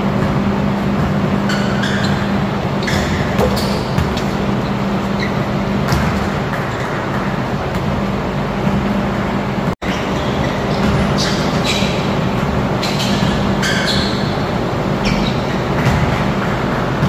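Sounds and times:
mechanical drone with low hum: 0:00.0 - 0:17.0
sneakers squeaking on hardwood: 0:00.0 - 0:17.0
basketball knocking: 0:00.2 - 0:04.6, 0:05.8 - 0:08.9, 0:15.1 - 0:17.0.

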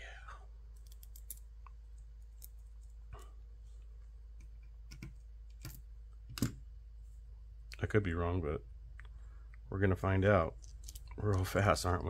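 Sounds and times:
small parts clicking and tapping: 0:00.7 - 0:03.0, 0:10.6 - 0:12.0.

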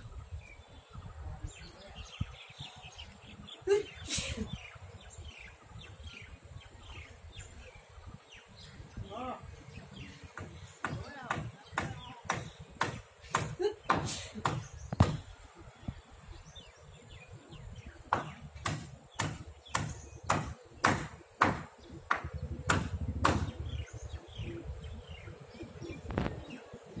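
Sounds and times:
birds chirping faintly: 0:00.0 - 0:27.0
hammer blows on timber: 0:18.1 - 0:23.6.

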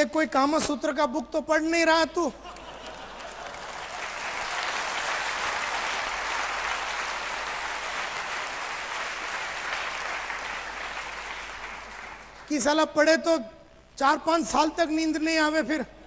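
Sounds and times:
audience applauding: 0:02.5 - 0:12.5.

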